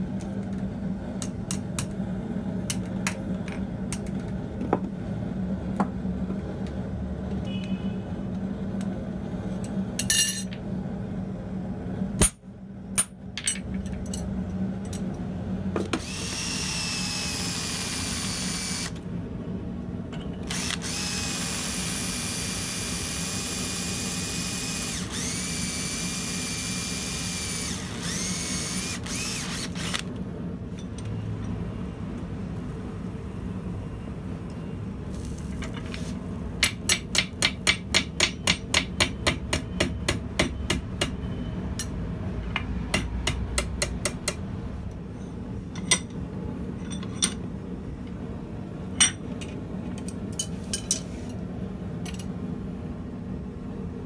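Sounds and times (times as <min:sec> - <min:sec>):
electric drill whining: 0:16.0 - 0:19.0, 0:20.4 - 0:30.1.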